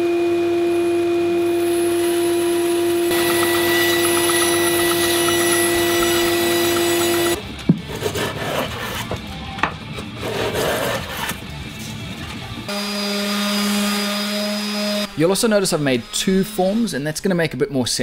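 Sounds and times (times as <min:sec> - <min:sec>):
power saw cutting wood: 0:01.4 - 0:09.2, 0:10.2 - 0:11.5, 0:12.7 - 0:17.1.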